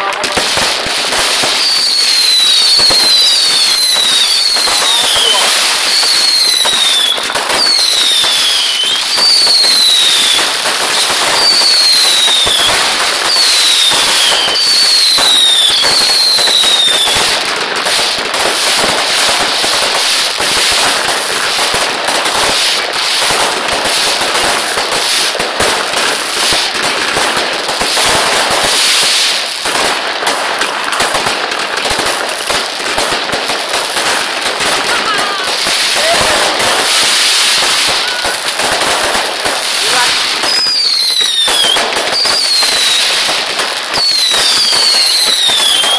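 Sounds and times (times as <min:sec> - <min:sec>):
fireworks bangs and crackling: 0:00.0 - 0:45.9
falling firework whistles: 0:00.3 - 0:24.2, 0:35.2 - 0:45.9.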